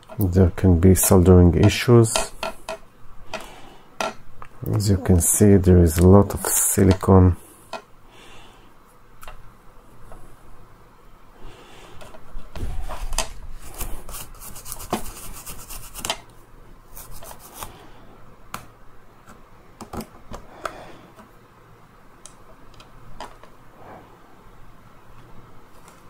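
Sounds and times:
small brush scrubbing: 12.9s - 16.1s, 16.9s - 17.7s.

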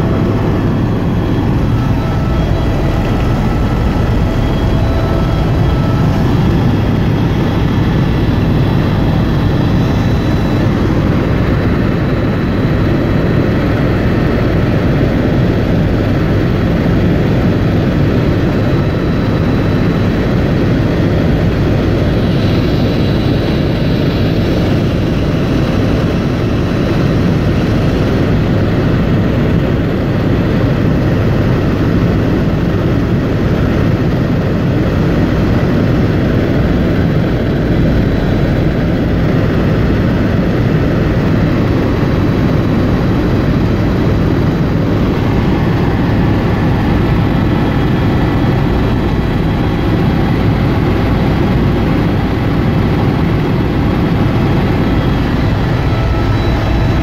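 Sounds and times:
faint high whining tones: 0.0s - 15.8s, 37.4s - 57.0s
helicopter engine and rotor noise: 0.0s - 57.0s.

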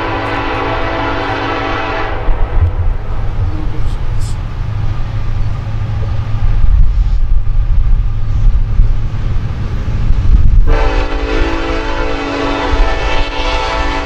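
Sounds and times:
locomotive air horn: 0.0s - 2.5s, 10.7s - 14.0s
locomotive engine rumble: 0.0s - 14.0s.

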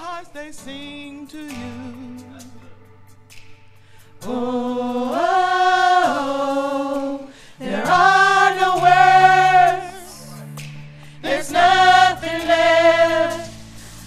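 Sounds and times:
women singing in harmony: 4.2s - 10.4s, 11.2s - 13.8s.

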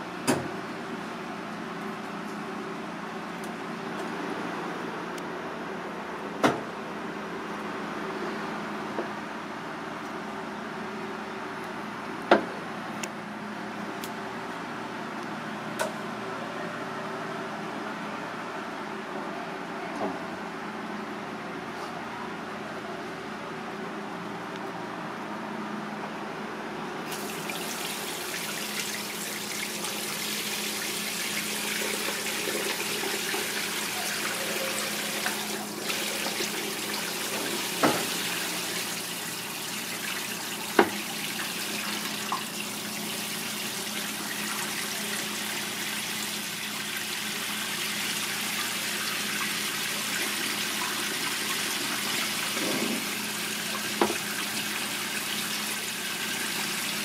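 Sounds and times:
tap spray running water: 27.1s - 57.0s.

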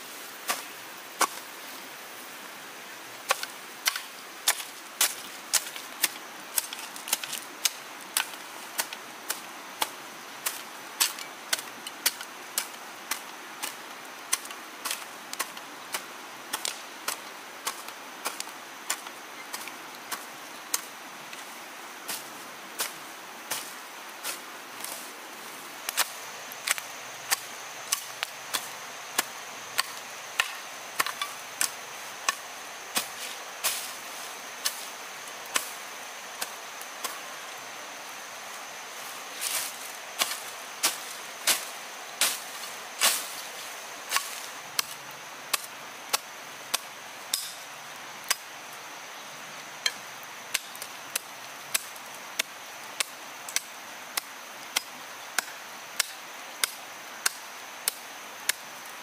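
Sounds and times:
hoe chopping into soil: 39.4s - 43.4s, 44.1s - 47.6s.

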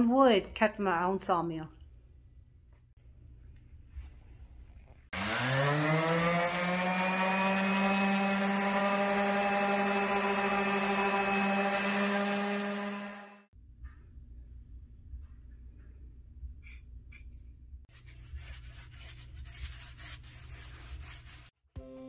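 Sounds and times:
orbital sander motor whine: 5.2s - 13.5s.

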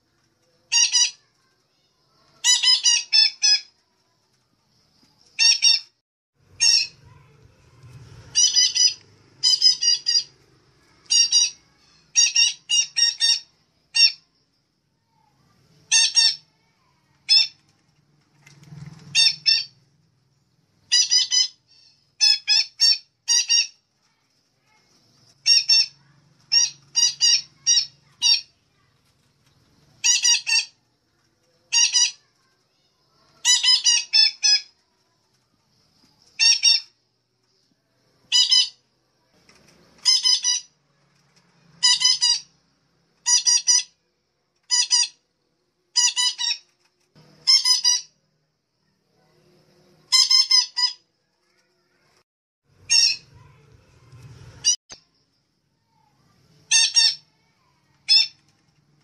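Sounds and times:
parrot calls: 0.7s - 1.3s, 2.3s - 3.7s, 6.6s - 7.2s, 8.3s - 10.3s, 15.9s - 16.5s, 20.9s - 23.8s, 25.4s - 28.5s, 30.0s - 30.8s, 33.4s - 34.7s, 38.3s - 38.8s, 40.0s - 40.7s, 41.8s - 42.5s, 43.2s - 44.0s, 45.9s - 46.7s, 47.4s - 48.2s, 50.1s - 51.0s, 52.9s - 53.5s, 56.7s - 58.4s.

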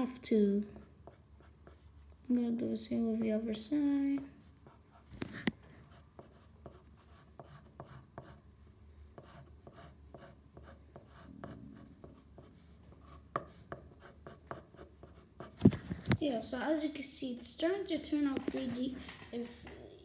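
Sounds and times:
pencil scratching on paper: 0.6s - 2.0s, 3.0s - 8.5s, 9.1s - 15.8s.

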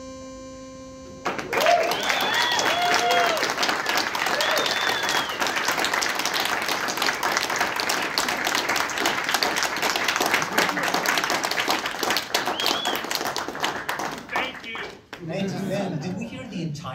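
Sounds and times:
audience applauding: 1.2s - 15.3s
short whistles: 4.4s - 5.6s, 12.5s - 13.1s.

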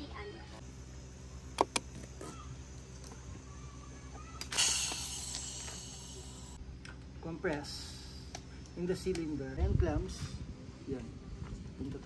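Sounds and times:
compressed air hissing: 4.5s - 6.6s.

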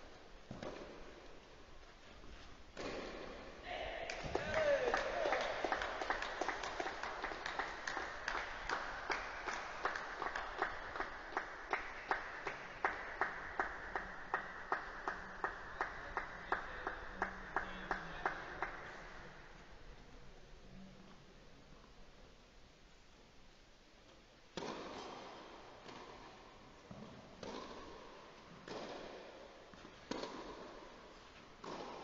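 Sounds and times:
spectators clapping rhythmically: 4.1s - 19.0s.

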